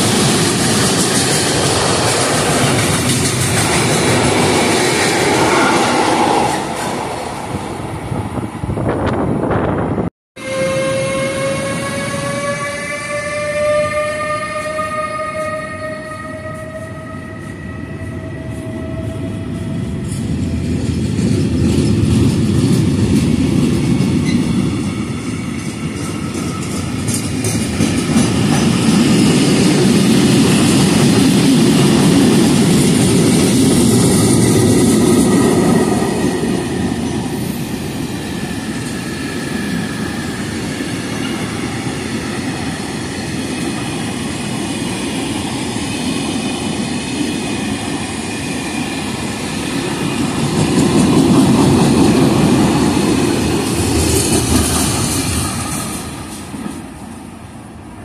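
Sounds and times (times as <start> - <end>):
freight train wheels clattering: 0.0 - 7.2, 19.3 - 57.2.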